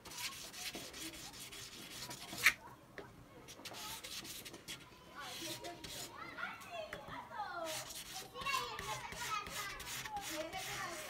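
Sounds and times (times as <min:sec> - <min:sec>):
knife scraping on sandpaper: 0:00.0 - 0:02.6, 0:05.3 - 0:06.1, 0:07.7 - 0:11.0.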